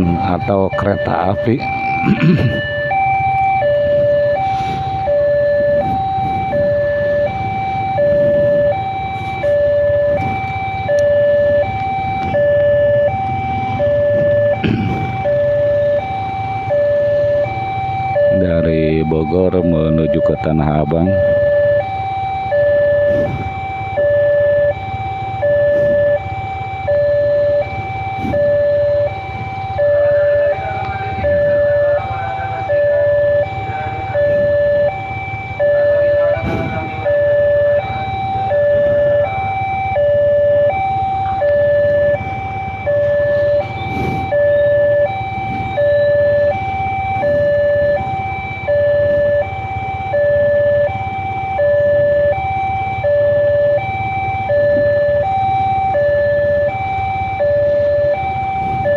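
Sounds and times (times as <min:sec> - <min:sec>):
engine and traffic rumble: 0:00.0 - 0:58.9
two-tone crossing alarm: 0:00.0 - 0:58.9.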